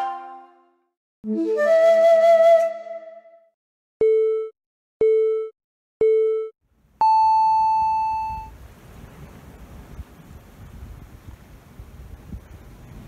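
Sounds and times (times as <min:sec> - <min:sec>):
time signal beeps: 0:04.0 - 0:08.5.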